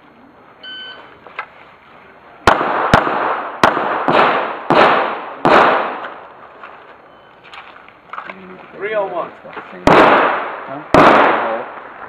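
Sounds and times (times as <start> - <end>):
pistol shots echoing: 2.5 - 6.2, 9.8 - 11.8.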